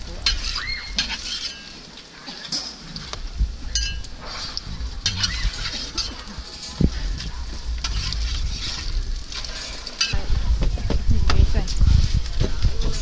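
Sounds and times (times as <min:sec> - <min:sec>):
flatbread sizzling on griddle: 0:00.0 - 0:10.2
metal spatula scraping pan: 0:00.1 - 0:10.2
low rumble: 0:03.2 - 0:13.0.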